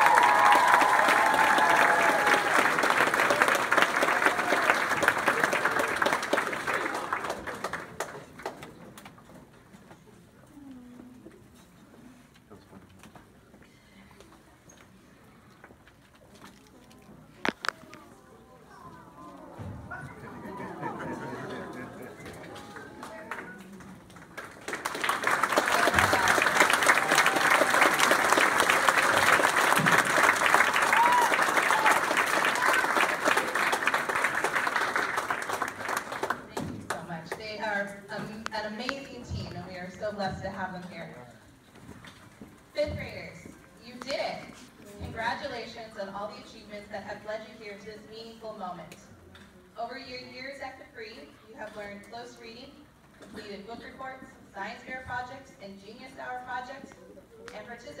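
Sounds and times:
audience applauding: 0:00.0 - 0:08.8, 0:20.8 - 0:37.1.

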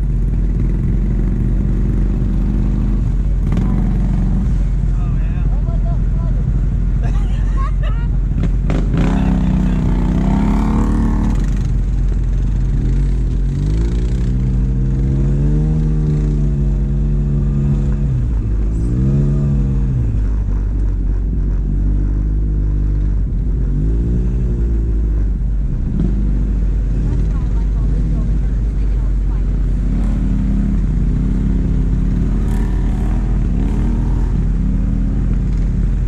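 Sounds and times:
atv engine revving: 0:00.0 - 0:36.0.

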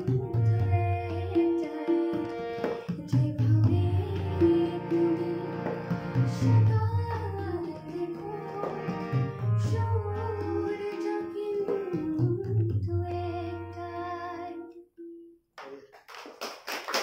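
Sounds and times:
tabla drumming: 0:00.0 - 0:13.5
woman singing: 0:00.0 - 0:15.4.

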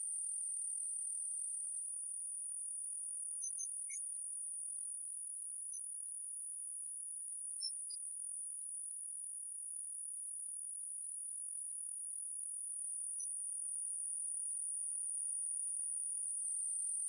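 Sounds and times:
faint short chirps: 0:03.4 - 0:04.1, 0:07.6 - 0:08.1.

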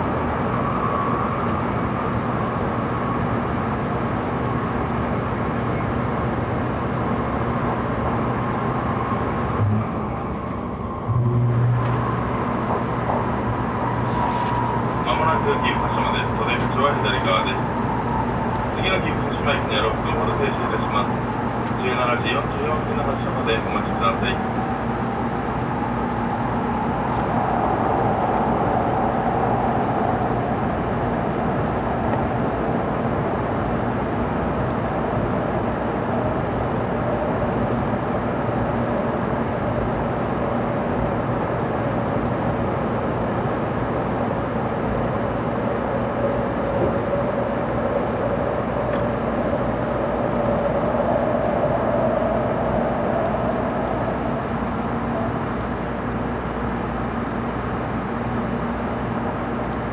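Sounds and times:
faint whine: 0:09.0 - 0:17.7, 0:18.4 - 0:24.5
train cabin rumble: 0:09.5 - 0:25.2, 0:26.2 - 0:59.9.

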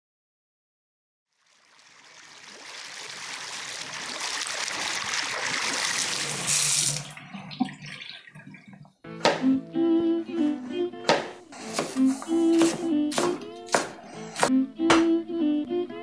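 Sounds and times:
tap water running into sink: 0:02.0 - 0:09.4.

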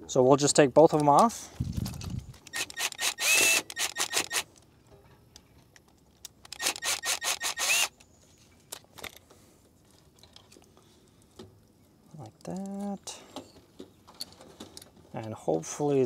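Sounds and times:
cordless drill clicking and whirring: 0:02.0 - 0:04.5, 0:06.4 - 0:08.0.

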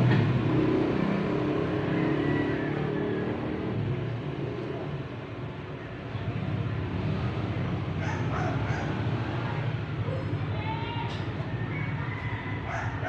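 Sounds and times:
vehicle engine rumbling: 0:00.0 - 0:13.0
dog yips: 0:08.0 - 0:09.0, 0:11.7 - 0:13.0.

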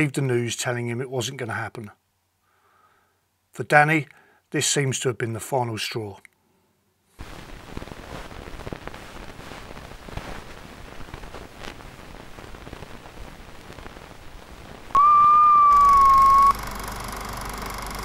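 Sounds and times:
crackly film hiss with clicks: 0:01.6 - 0:04.9, 0:05.9 - 0:18.0
steady hum: 0:14.9 - 0:18.0
loud beep: 0:15.0 - 0:16.6.

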